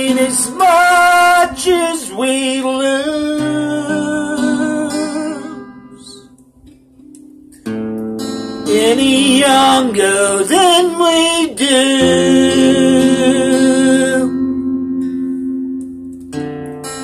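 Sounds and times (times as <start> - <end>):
man singing: 0.0 - 6.3, 8.6 - 14.5
acoustic guitar strumming: 0.0 - 17.0.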